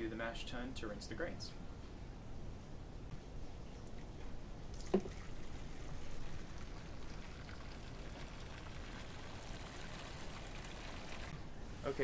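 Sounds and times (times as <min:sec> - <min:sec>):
water rushing through hose: 0:04.8 - 0:11.3.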